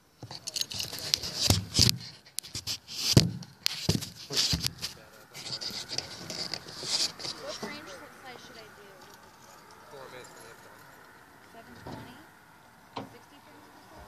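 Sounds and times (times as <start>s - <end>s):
close rustling: 0.2s - 12.2s
people's voices: 4.1s - 12.4s, 13.0s - 14.0s.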